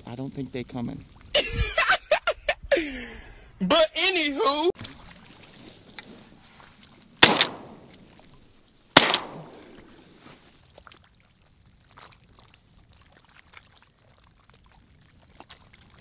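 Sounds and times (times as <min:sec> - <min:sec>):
shotgun shots: 0:07.2 - 0:08.0, 0:09.0 - 0:09.8.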